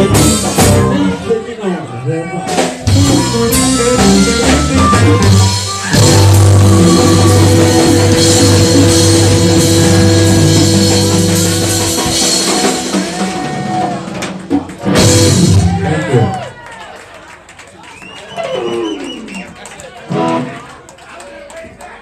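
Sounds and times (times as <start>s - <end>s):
electric blues band playing: 0.0s - 1.4s, 2.4s - 16.4s, 20.1s - 20.7s.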